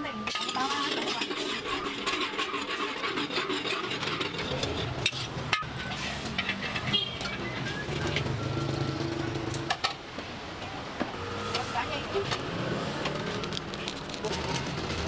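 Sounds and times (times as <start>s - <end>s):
metal ladle scraping wok: 0.4s - 8.1s.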